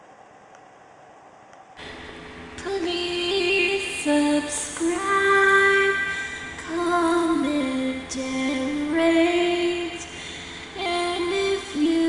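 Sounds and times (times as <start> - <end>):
woman singing slow melody: 2.6 - 12.0.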